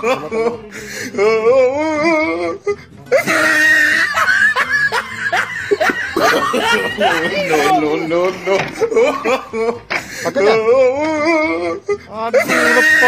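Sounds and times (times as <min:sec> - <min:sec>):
laughter: 0:00.0 - 0:00.7, 0:03.1 - 0:13.0
music: 0:00.0 - 0:13.0.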